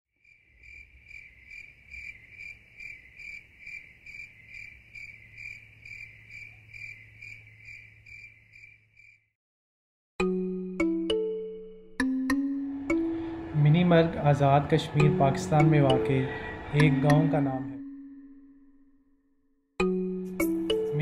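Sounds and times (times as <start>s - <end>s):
cricket chirping: 0.2s - 9.3s.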